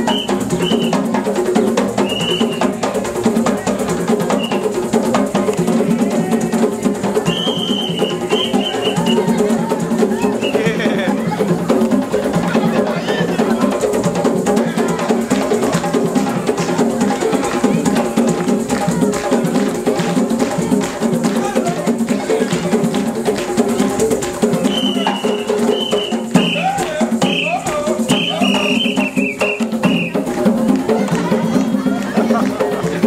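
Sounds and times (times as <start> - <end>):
hand drums playing: 0.0 - 33.0
high-pitched notes: 24.0 - 31.6.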